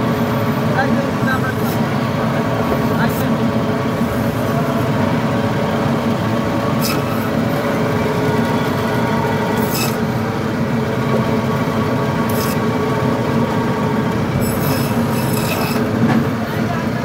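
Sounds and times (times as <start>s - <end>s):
band saw motor hum: 0.0s - 17.0s
saw blade rasping through fish: 6.8s - 7.4s, 9.6s - 10.1s, 12.2s - 12.6s, 14.4s - 16.0s.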